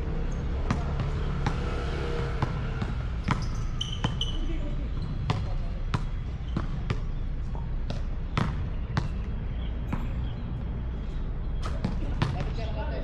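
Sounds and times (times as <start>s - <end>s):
basketball bouncing on hard court: 0.3s - 9.3s, 11.6s - 12.7s.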